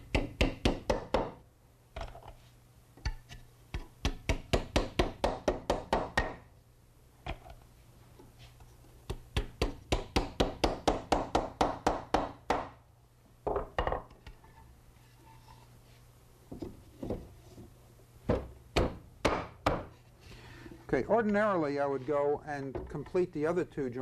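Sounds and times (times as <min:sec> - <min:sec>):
wooden mallet tapping wood: 0:00.1 - 0:01.4, 0:03.8 - 0:06.4, 0:09.1 - 0:12.7.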